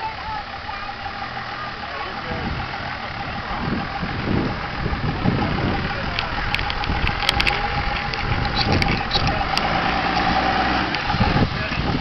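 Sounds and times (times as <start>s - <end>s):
truck engine running slowly: 0.0s - 12.0s
sharp clicks: 5.8s - 11.2s.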